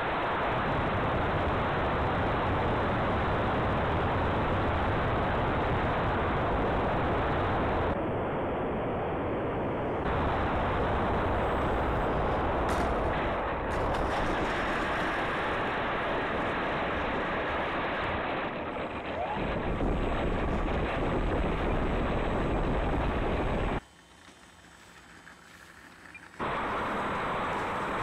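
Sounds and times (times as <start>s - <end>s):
wind buffeting: 0.0s - 23.8s
electric motor and propeller: 10.0s - 28.0s.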